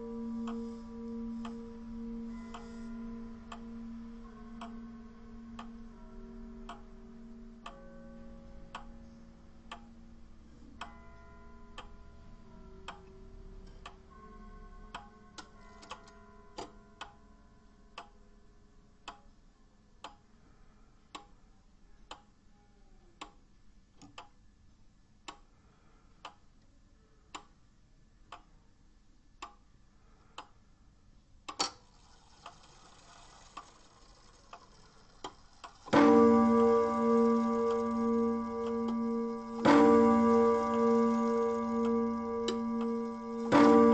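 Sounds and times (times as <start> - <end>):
wall clock ticking: 0.0 - 17.3, 17.9 - 18.3, 19.0 - 19.3, 20.0 - 20.4, 21.1 - 21.4, 23.2 - 24.4, 25.2 - 25.5, 26.2 - 26.5, 27.3 - 27.6, 28.2 - 28.6, 29.4 - 29.7, 30.4 - 30.6, 31.4 - 43.9
faint ringing tones: 0.0 - 17.7, 35.8 - 43.9.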